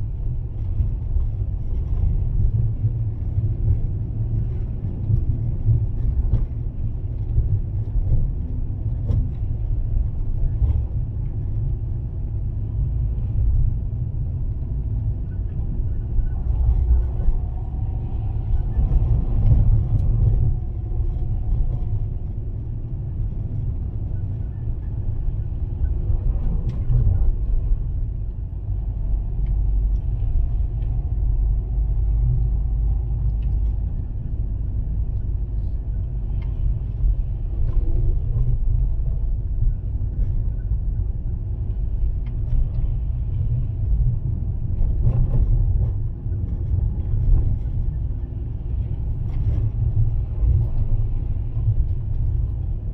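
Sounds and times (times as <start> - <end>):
car engine and tyres rumbling: 0.0 - 52.9.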